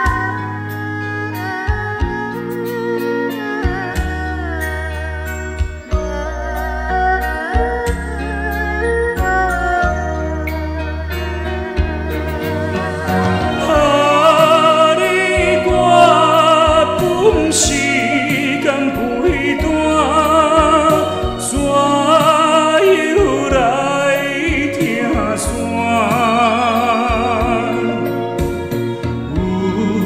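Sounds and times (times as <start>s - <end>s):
instrumental backing track: 0.0s - 30.0s
man singing with vibrato: 12.6s - 30.0s.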